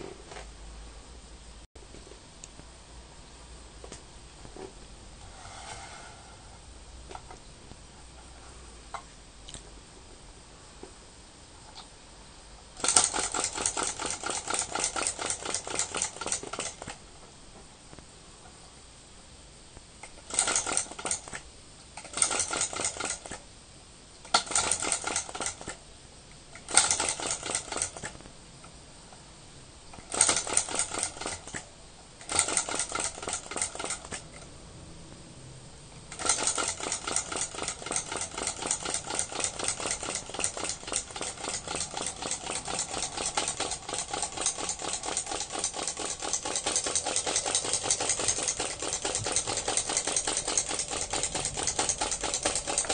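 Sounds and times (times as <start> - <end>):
small engine ticking rapidly: 12.8 - 16.9, 20.2 - 21.4, 22.0 - 23.4, 24.3 - 25.8, 26.7 - 28.1, 30.1 - 31.6, 32.2 - 34.2, 36.1 - 52.9
flywheel being spun: 12.8 - 17.0, 20.1 - 21.4, 22.0 - 23.4, 24.3 - 25.8, 26.6 - 28.2, 30.0 - 31.6, 32.2 - 34.2, 36.1 - 52.9.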